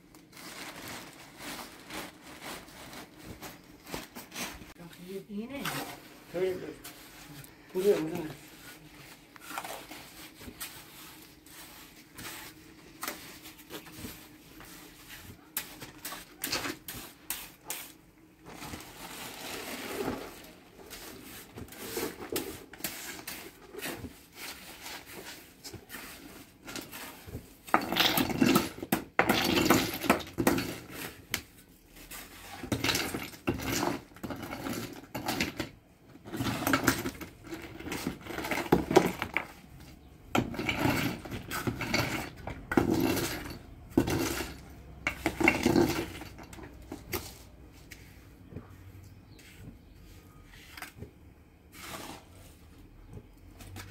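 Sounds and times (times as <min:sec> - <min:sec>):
trowel scraping wet mortar: 0:51.7 - 0:52.6.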